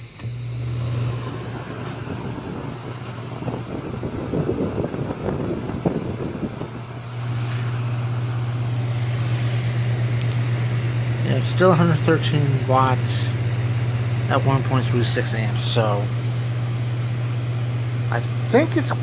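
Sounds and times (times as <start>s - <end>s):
fan motor humming: 0.0s - 19.0s
rushing air: 0.8s - 11.2s.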